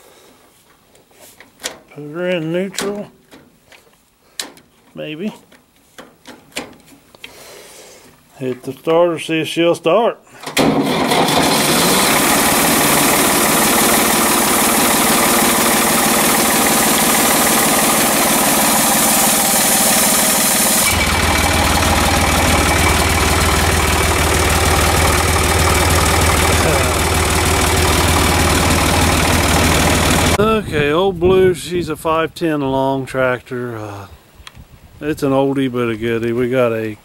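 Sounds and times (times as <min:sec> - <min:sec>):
tractor diesel engine idling: 0:10.6 - 0:30.8.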